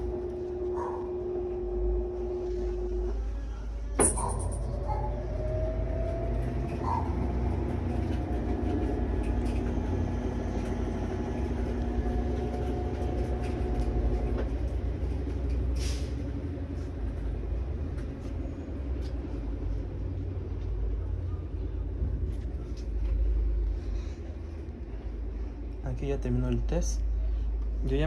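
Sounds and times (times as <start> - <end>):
motor whine: 0.0 - 16.5
washing machine spinning: 0.0 - 28.0.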